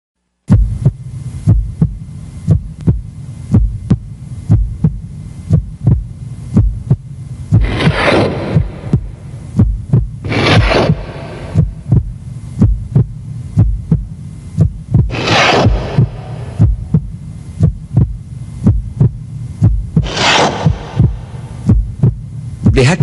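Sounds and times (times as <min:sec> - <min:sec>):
heartbeat: 0:00.5 - 0:23.0
short hissing noises: 0:10.2 - 0:11.8, 0:15.1 - 0:16.6, 0:20.0 - 0:21.7.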